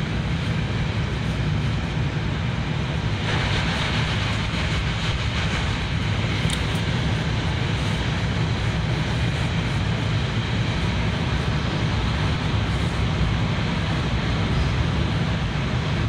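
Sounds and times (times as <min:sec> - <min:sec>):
train rumbling and rushing: 0:00.0 - 0:16.0
passing train rushing: 0:02.9 - 0:14.0.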